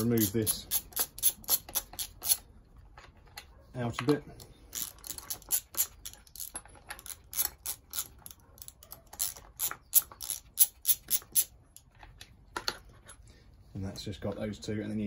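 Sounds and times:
socket wrench ratcheting: 0.0 - 2.4, 4.4 - 11.5.

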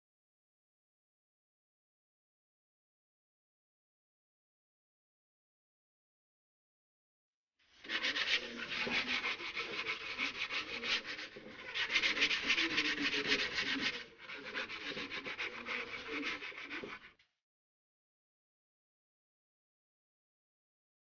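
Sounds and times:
sandpaper scratching plastic pipe: 7.7 - 17.2.

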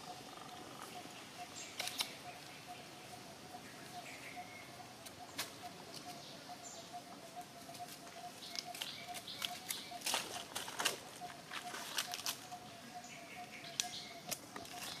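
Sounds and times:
dry leaves crackling and rustling: 7.7 - 12.6, 13.7 - 15.0.

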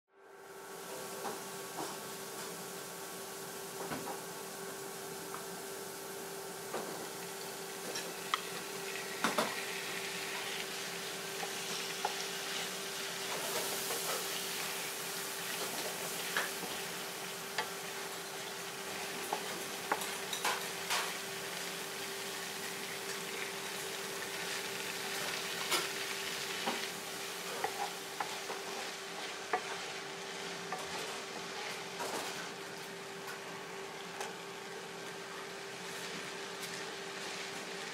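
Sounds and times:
meat sizzling in oil: 5.6 - 32.0
spatula scraping a pan: 27.4 - 30.1.

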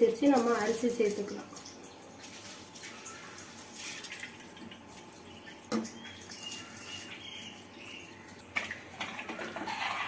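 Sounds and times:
water splashing and dripping: 0.0 - 9.6
ladle stirring pot: 9.0 - 10.0.

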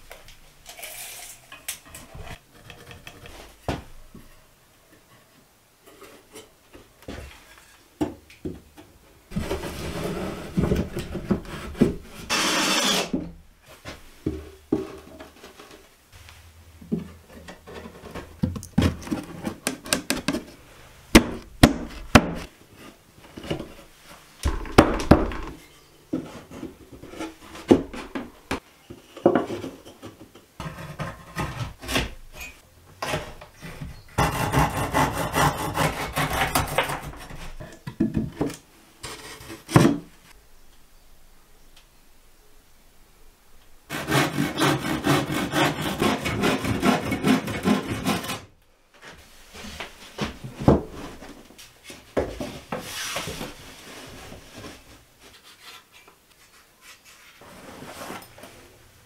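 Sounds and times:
wood scraping and rubbing: 9.3 - 13.2
wooden knocks: 24.4 - 25.6.

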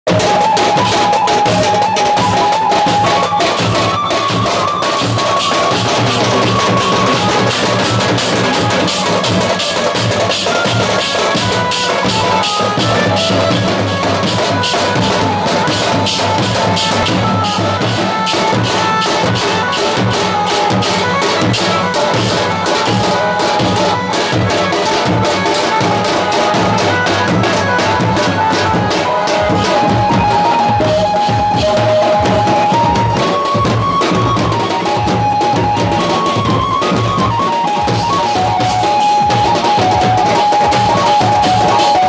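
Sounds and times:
cymbals clashing: 0.1 - 33.6
bass and side drums beating: 0.1 - 42.0
melody line: 0.1 - 42.0.

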